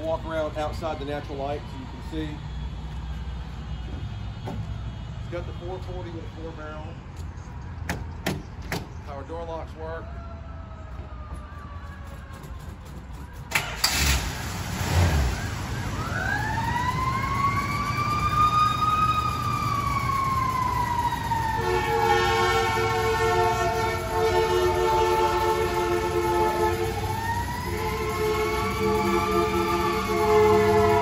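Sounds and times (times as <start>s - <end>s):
fire truck siren wailing: 0.0s - 7.5s, 9.3s - 31.0s
fire truck horn blast: 21.4s - 31.0s.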